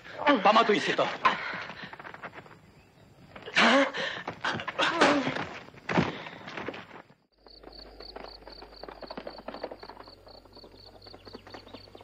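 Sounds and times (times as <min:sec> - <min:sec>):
crickets chirping: 0:00.0 - 0:12.0
horses' hooves clopping: 0:00.6 - 0:03.4, 0:04.2 - 0:12.0.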